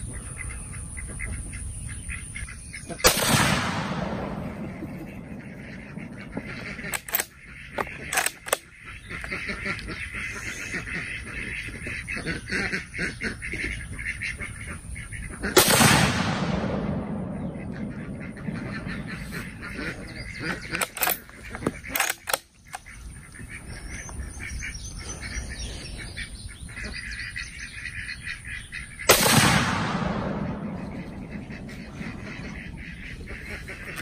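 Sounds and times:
rifle shot with echo: 3.0 - 7.3, 15.5 - 20.0, 29.1 - 32.6
rifle bolt metallic clacks: 6.9 - 8.6, 20.8 - 22.8.

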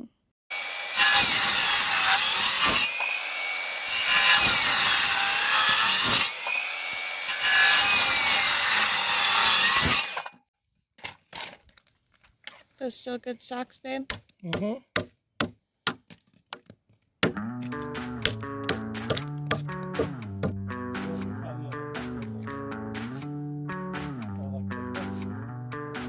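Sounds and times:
circular saw cutting wood: 0.5 - 10.4.

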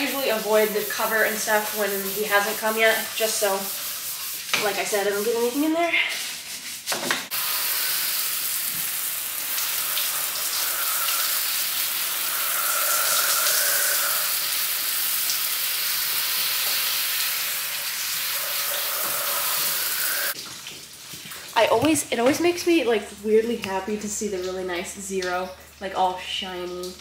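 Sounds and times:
water spray hitting metal: 0.0 - 20.4.

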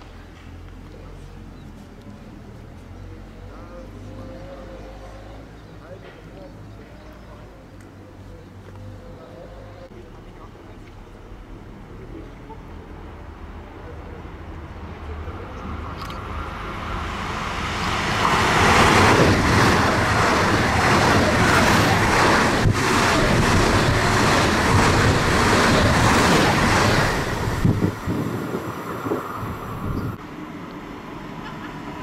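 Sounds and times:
train passing: 11.0 - 32.0.

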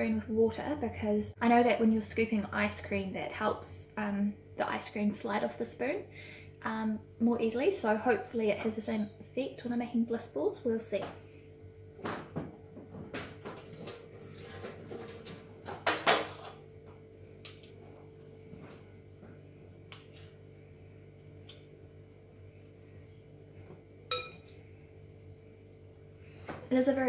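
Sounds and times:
faint steady hum: 0.0 - 27.0
spoons clinking on glass bowl: 24.1 - 24.6.

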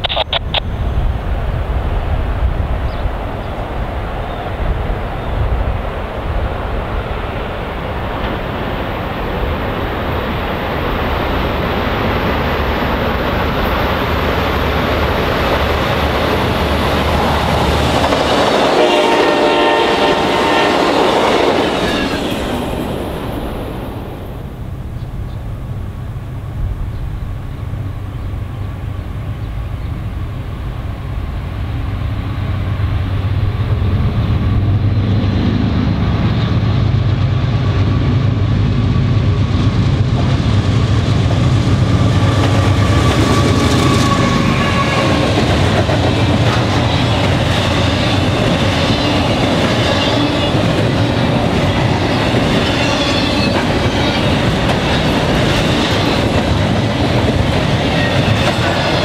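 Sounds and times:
diesel locomotive engine drone: 0.0 - 59.0
train wheels clattering on rails: 7.8 - 23.8, 33.6 - 59.0.

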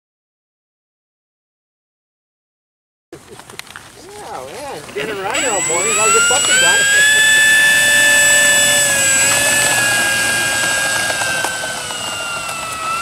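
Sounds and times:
model plane electric motor whine: 4.1 - 13.0.

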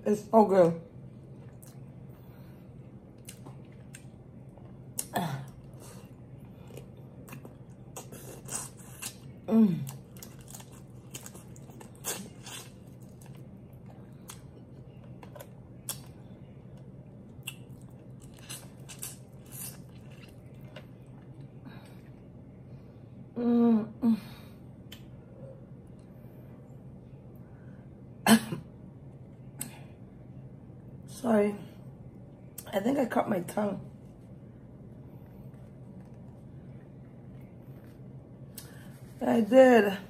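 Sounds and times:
chewing: 3.2 - 22.2.

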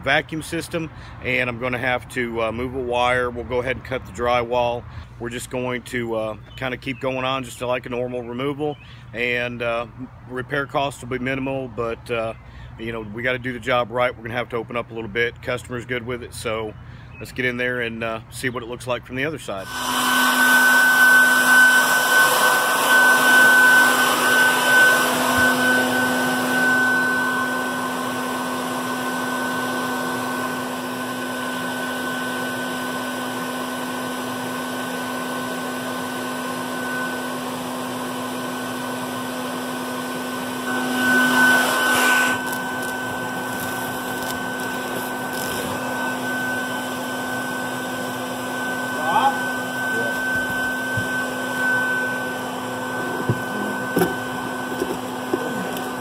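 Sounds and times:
bee vacuum humming: 19.6 - 56.0.

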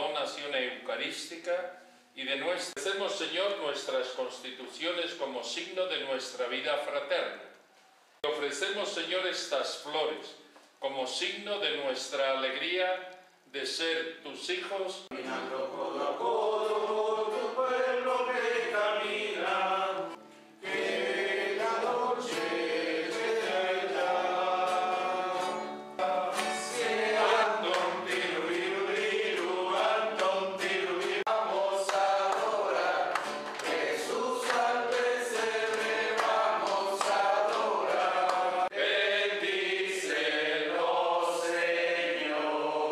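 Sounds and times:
group singing a hymn: 15.1 - 42.9.

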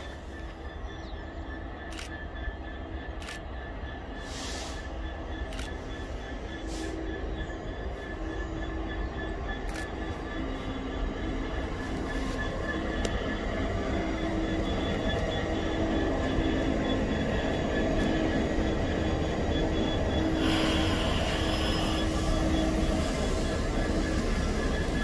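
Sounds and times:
diesel locomotive engine droning: 0.0 - 25.0
high hiss: 20.4 - 23.1.

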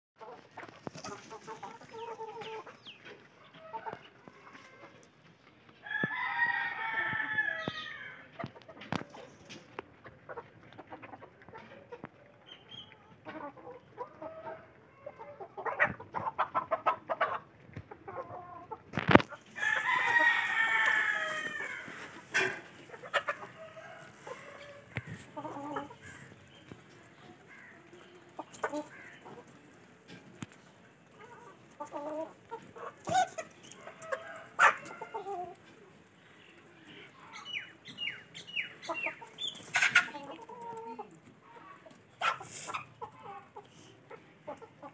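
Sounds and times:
hens clucking: 0.2 - 44.9
rooster crowing: 5.9 - 8.2, 19.6 - 22.0.

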